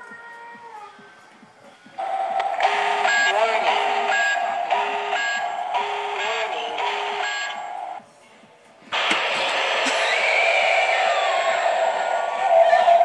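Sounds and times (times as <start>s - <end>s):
spooky music with wavering tones: 2.0s - 8.0s, 9.3s - 13.0s
loud shriek-like effect: 9.0s - 13.0s.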